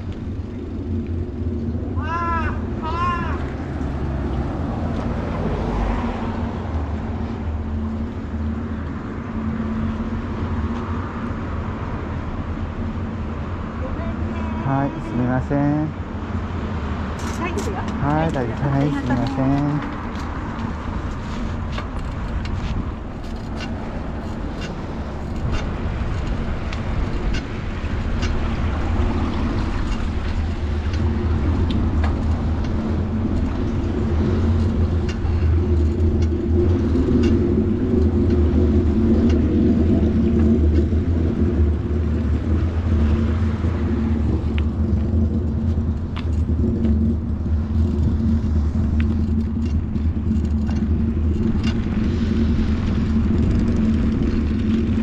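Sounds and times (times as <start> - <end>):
bicycle rolling over pavement: 0.0 - 55.0
light rattles and ticks: 17.0 - 55.0.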